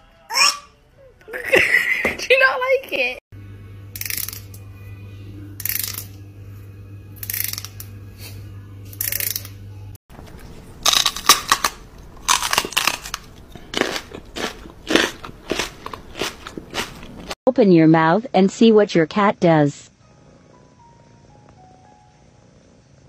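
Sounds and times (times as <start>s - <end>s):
steady low hum: 3.3s - 17.4s
sharp crunching sounds: 10.8s - 17.4s.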